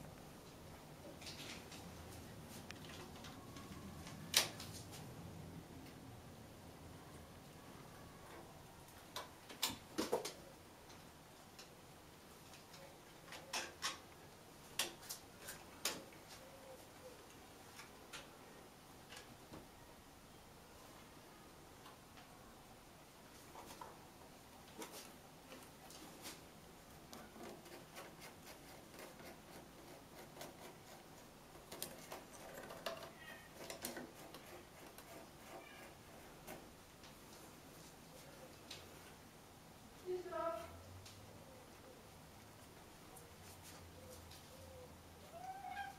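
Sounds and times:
kitten claws scratching on bark: 0:27.1 - 0:36.8.

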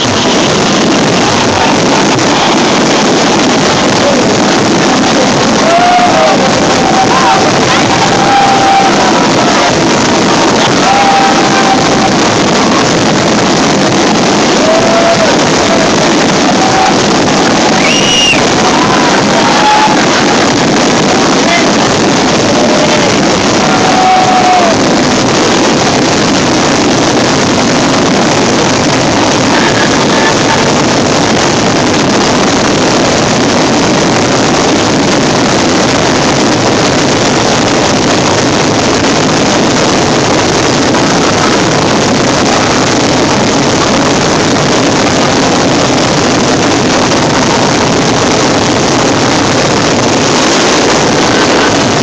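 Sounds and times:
fireworks bursts and crackles: 0:00.0 - 0:52.0.

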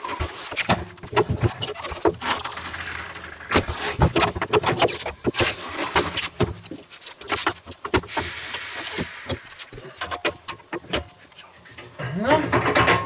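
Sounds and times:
metallic knocks and clatter: 0:00.1 - 0:08.2, 0:09.3 - 0:13.0
brief air hiss: 0:08.0 - 0:09.7.

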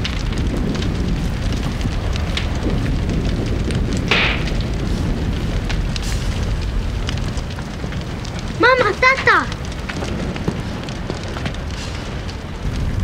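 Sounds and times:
low rumble: 0:00.0 - 0:08.6
fire crackling: 0:00.0 - 0:13.0
sharp loud crack: 0:04.1 - 0:05.0.

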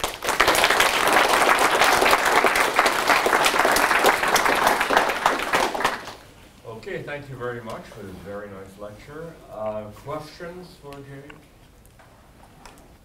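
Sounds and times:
audience applauding: 0:00.0 - 0:06.3.

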